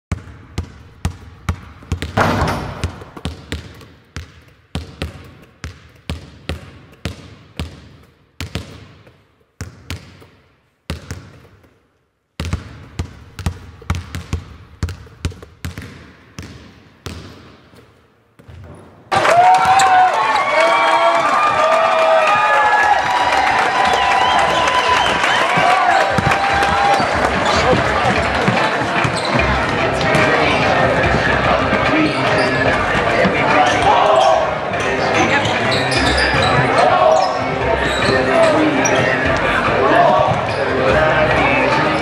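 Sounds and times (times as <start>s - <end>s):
basketball dribbling on gym floor: 0.1s - 11.8s, 12.4s - 18.8s
crowd cheering: 19.1s - 34.8s, 36.1s - 42.0s.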